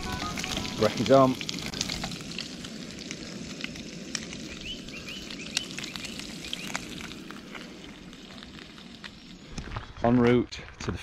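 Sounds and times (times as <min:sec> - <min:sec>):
frying pan sizzling: 0:00.0 - 0:09.6
bird chirps: 0:04.5 - 0:06.9.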